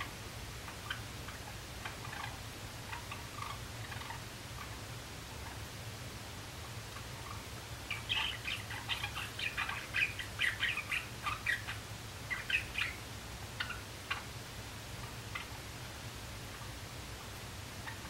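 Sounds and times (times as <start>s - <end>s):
sparrow chirping and clicking: 7.2s - 13.0s.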